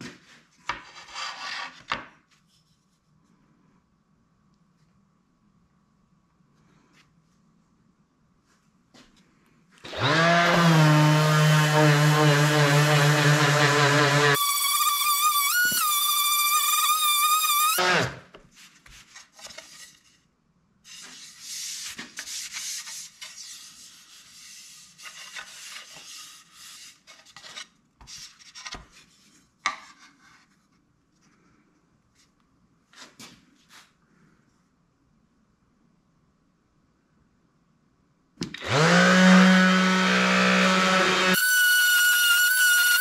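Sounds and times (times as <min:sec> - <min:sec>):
orbital sander whining: 0:09.9 - 0:18.2, 0:38.6 - 0:43.0
sander spinning down: 0:09.9 - 0:18.2, 0:38.6 - 0:43.0.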